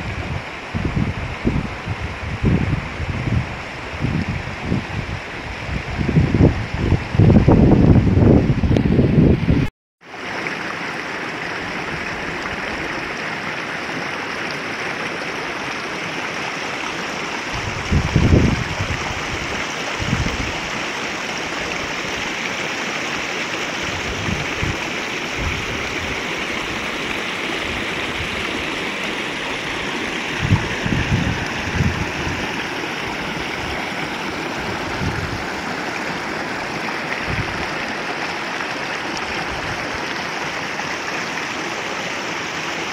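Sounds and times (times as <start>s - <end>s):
stream rushing over stones: 0.0s - 42.9s.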